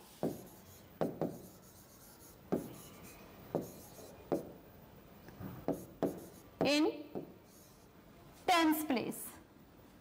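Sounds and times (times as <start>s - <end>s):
pen rubbing on whiteboard screen: 0.0s - 4.5s, 5.6s - 6.6s, 7.4s - 7.9s
pen taps: 3.5s - 4.5s, 5.6s - 7.3s.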